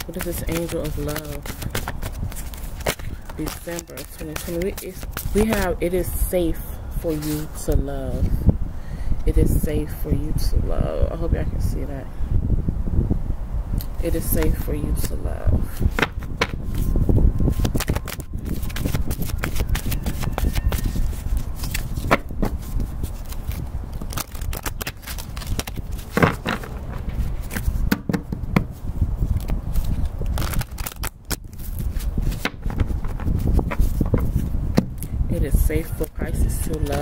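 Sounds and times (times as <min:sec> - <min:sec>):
cards being shuffled: 0:00.0 - 0:05.8, 0:07.1 - 0:07.5, 0:15.8 - 0:34.9, 0:35.9 - 0:37.0
steady low rumble: 0:00.0 - 0:37.0.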